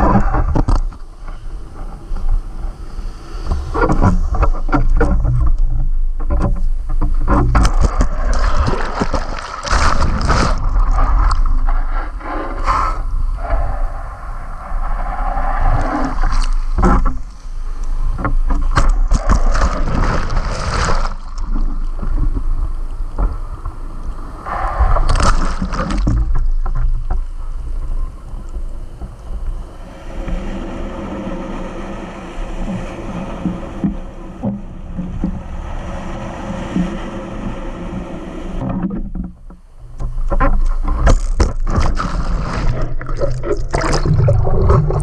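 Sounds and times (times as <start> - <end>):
wind rumble on microphone: 0.0 - 45.0
whitewater splashing over surfboard: 3.8 - 12.7, 13.4 - 22.7, 40.2 - 45.0.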